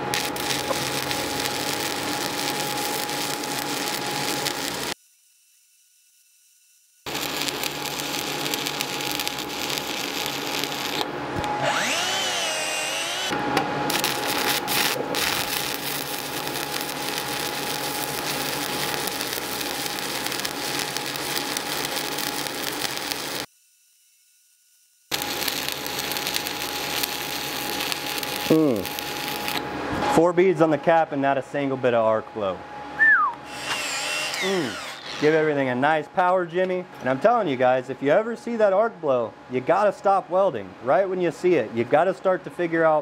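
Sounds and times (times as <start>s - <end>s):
welding arc crackling and sizzling: 0.0s - 11.1s, 11.7s - 29.7s
wavering whistle: 33.0s - 33.5s.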